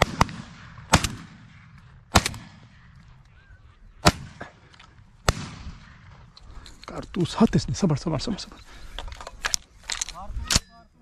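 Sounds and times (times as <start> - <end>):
shotgun shots: 0.0 - 2.8, 4.0 - 4.6, 5.2 - 6.2.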